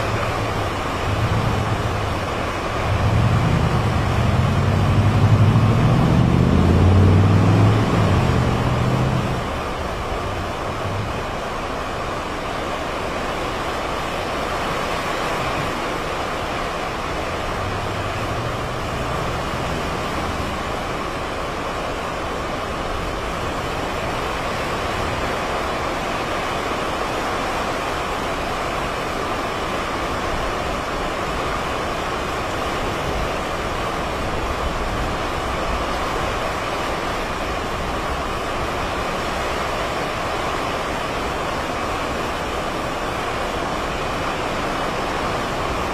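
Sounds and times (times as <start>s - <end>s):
strong wind rushing: 0.0s - 11.8s.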